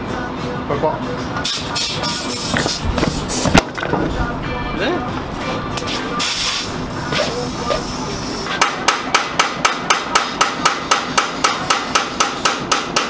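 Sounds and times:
hammer blows on metal: 5.4s - 13.0s.

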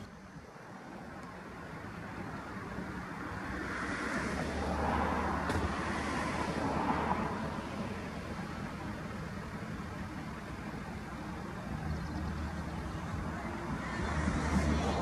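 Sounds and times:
vehicle passing by: 3.6s - 8.0s, 11.7s - 15.0s.

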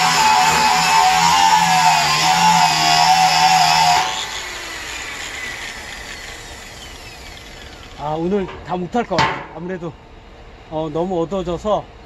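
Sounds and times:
angle grinder wire brush whine: 0.0s - 9.2s.

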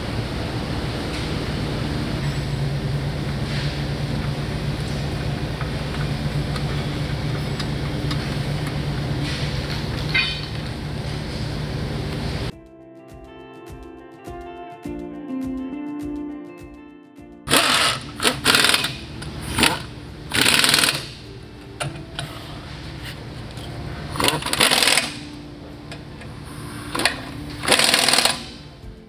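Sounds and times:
pneumatic impact wrench bursts: 17.5s - 21.3s, 24.1s - 25.4s, 26.5s - 28.6s.

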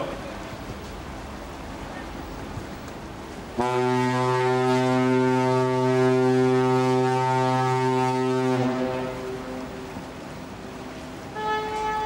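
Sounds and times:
ship's horn blast: 3.6s - 12.0s.

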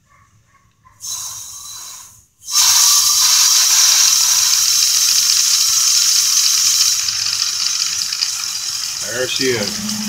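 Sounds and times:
compressed air hissing: 1.0s - 7.2s.

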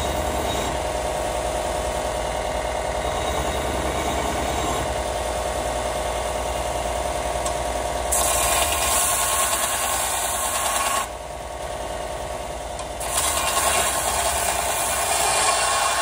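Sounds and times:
belt sander grinding steel: 8.1s - 11.1s, 13.0s - 16.0s.

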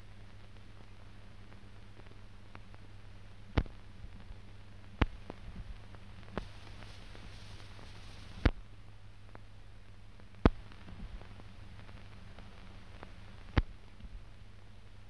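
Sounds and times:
film soundtrack hiss: 0.0s - 15.0s
low steady hum: 0.0s - 15.0s
sharp clicks and pops: 3.5s - 8.6s, 10.2s - 14.2s.

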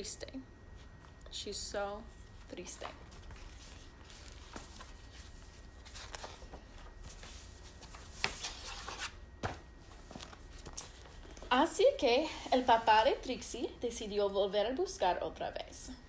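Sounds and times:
book pages rustling: 2.3s - 11.5s.

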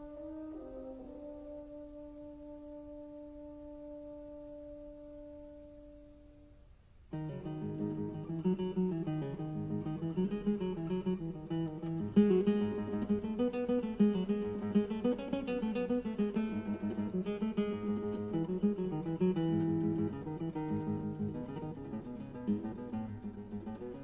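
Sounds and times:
flamenco acoustic guitar: 7.1s - 24.0s.

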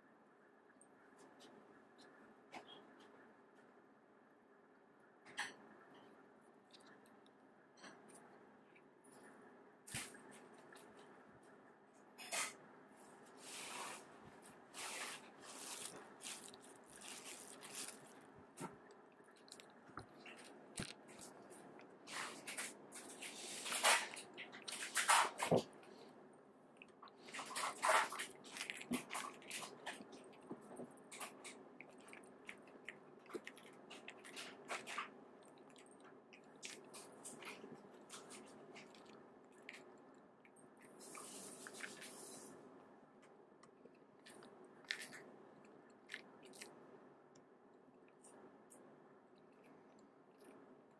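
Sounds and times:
cat crunching dry treats: 14.8s - 25.4s, 26.9s - 40.0s, 44.2s - 46.8s.

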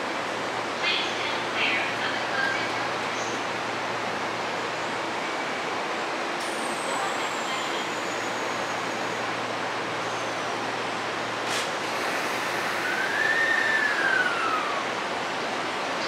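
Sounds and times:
train rolling noise: 0.0s - 16.0s
high rising and falling tone: 12.0s - 15.3s.

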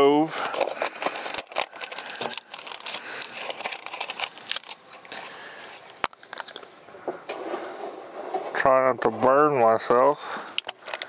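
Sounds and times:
packaging crinkling: 0.3s - 6.8s.

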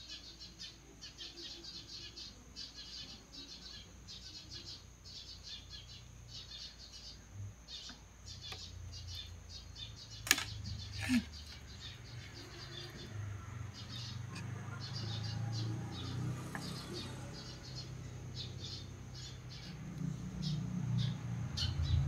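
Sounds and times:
small birds chirping: 0.0s - 22.0s
sharp clicks: 10.2s - 11.1s.

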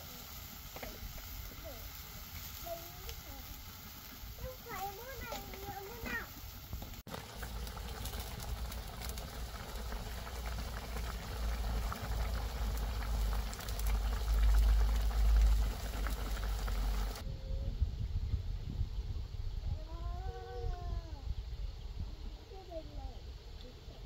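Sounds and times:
broth boiling with pops: 0.0s - 17.2s
low fire rumble: 0.0s - 23.5s.

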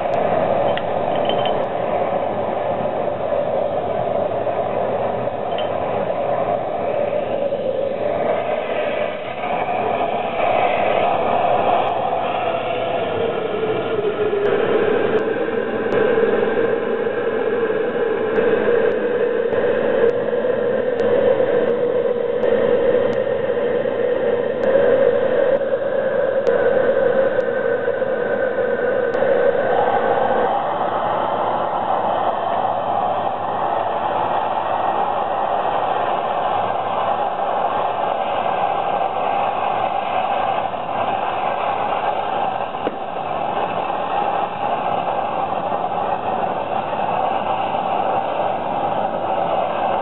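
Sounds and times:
propane burner roaring: 0.0s - 50.0s.

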